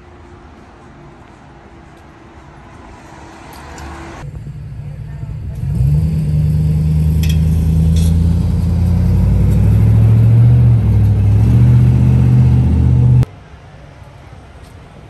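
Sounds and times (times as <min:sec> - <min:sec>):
vehicle engine running: 0:00.0 - 0:13.3.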